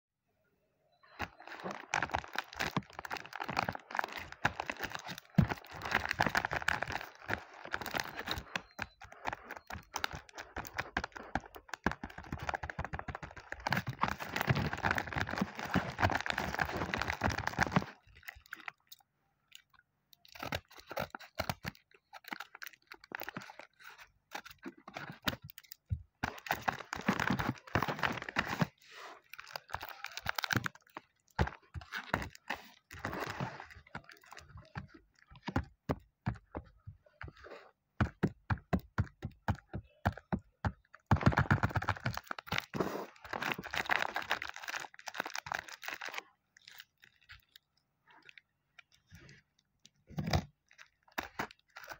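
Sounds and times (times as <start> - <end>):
paper and plastic crinkling: 1.0 - 19.0, 20.2 - 37.4, 41.0 - 47.6, 50.2 - 51.9.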